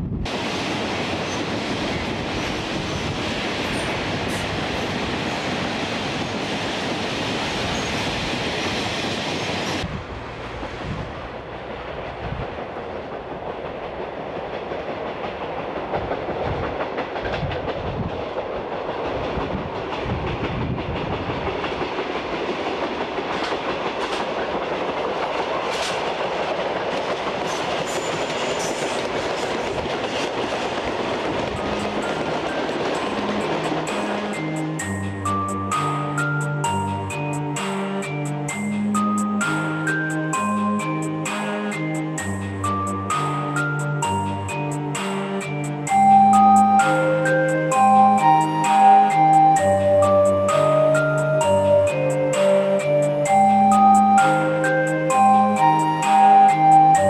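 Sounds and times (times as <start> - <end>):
train wheels clattering over rail joints: 10.6 - 36.3.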